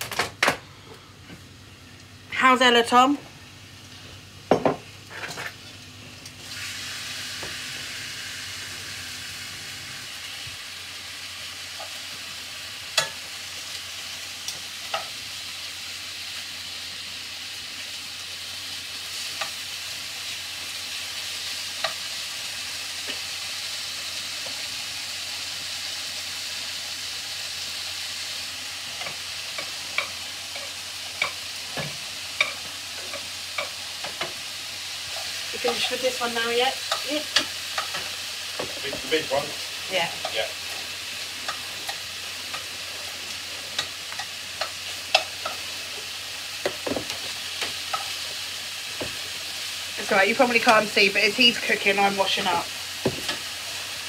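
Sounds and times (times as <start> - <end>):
steak sizzling in a frying pan: 1.2 - 54.0
utensil clicking against pan: 36.8 - 38.1, 43.8 - 45.6.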